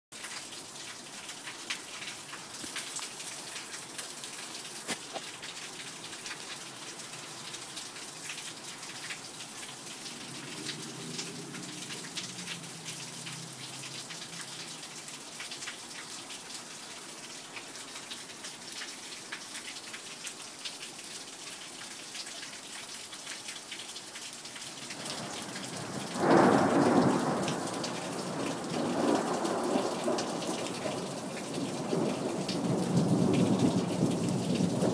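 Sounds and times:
steady rain falling: 0.1s - 34.9s
raindrops ticking close by: 0.2s - 34.9s
thunder clap rolling: 25.0s - 34.9s.

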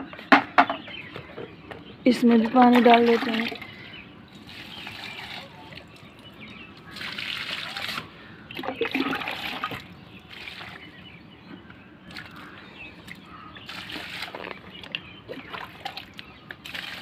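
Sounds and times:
water splashing onto soil: 13.7s - 17.0s.

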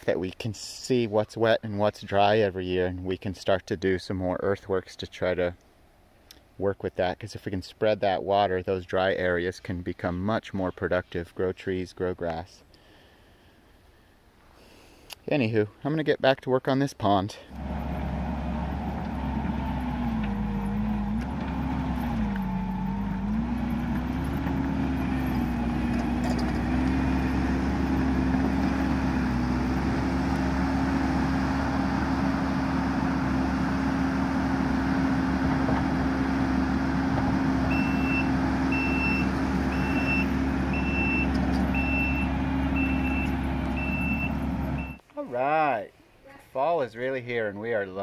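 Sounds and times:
diesel engine working: 17.5s - 45.0s
backup alarm beeping: 37.7s - 45.0s.

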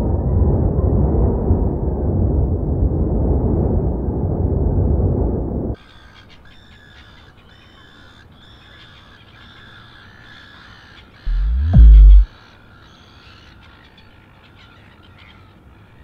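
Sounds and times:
loud deep rumble: 11.3s - 12.3s
low thud: 11.3s - 12.3s
rising tone: 11.3s - 12.3s.

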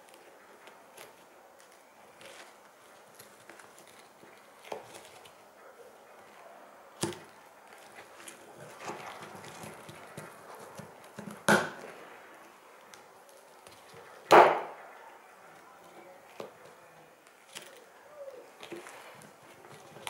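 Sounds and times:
fabric sheath rustling: 7.0s - 14.2s.

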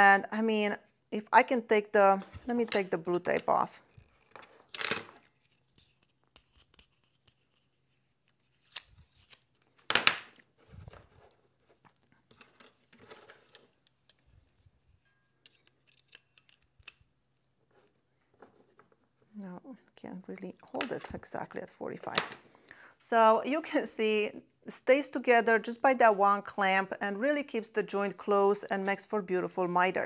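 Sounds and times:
tape being peeled: 3.8s - 14.7s, 15.4s - 18.0s.

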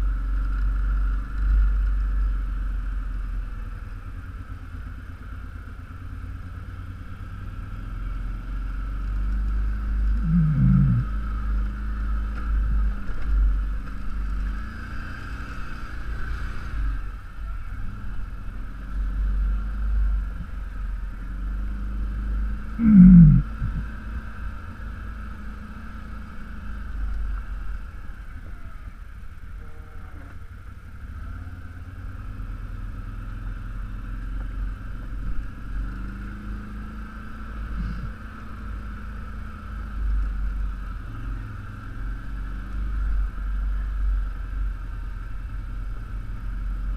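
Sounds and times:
atv engine rumbling: 0.0s - 46.9s.

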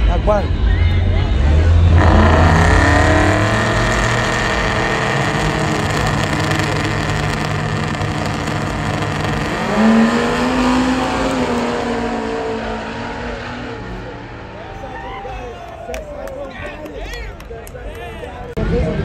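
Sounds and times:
truck engines running: 0.0s - 19.0s
truck engine revving: 1.2s - 14.9s.

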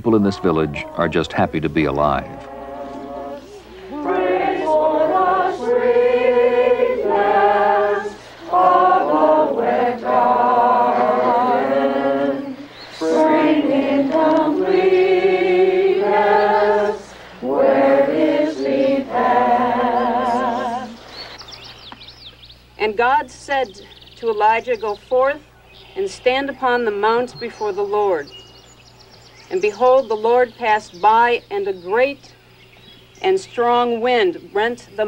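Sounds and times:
congregation singing a hymn: 0.0s - 21.2s.

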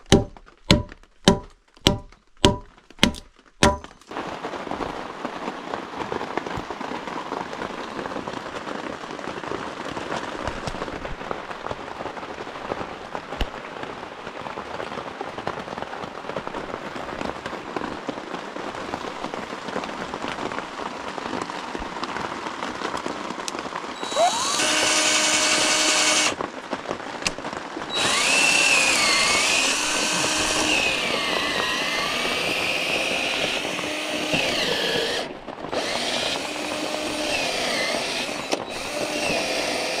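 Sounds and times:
cordless drill running: 24.0s - 26.4s, 27.9s - 40.0s.

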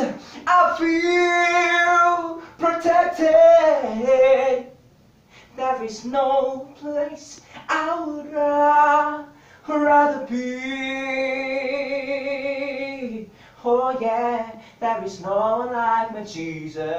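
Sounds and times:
man singing unaccompanied: 0.0s - 4.8s, 5.5s - 16.9s.

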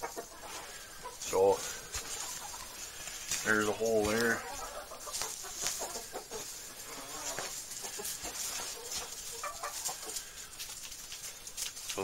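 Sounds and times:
hens clucking: 0.0s - 12.0s
rustling and scratching in bedding: 0.0s - 12.0s.

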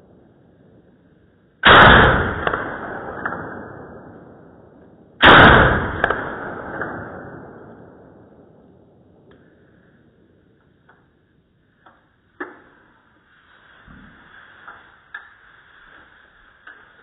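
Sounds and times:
rifle shots in slow motion: 1.6s - 10.5s.

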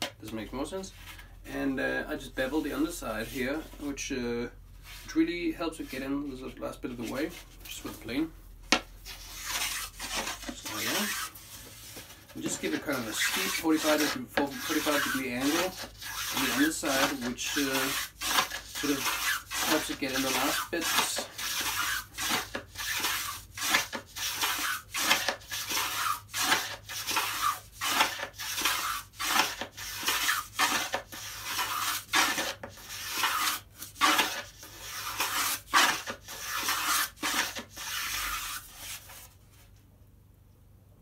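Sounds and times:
hand plane shaving wood: 9.0s - 39.3s.

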